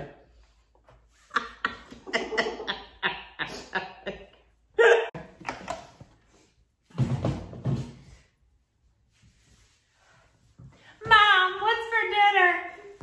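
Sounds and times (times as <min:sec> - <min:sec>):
breathy laughter: 0:01.4 - 0:05.1.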